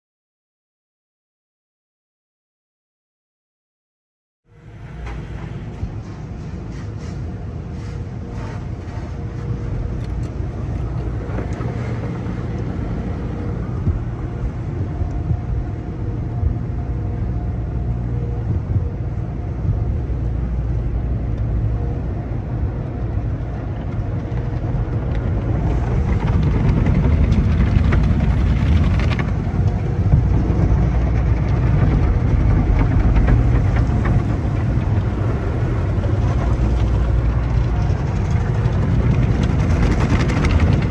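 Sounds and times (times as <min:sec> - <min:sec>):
machinery hum: 0:04.5 - 0:40.9
cloth curtain sweeping across car: 0:06.1 - 0:09.7.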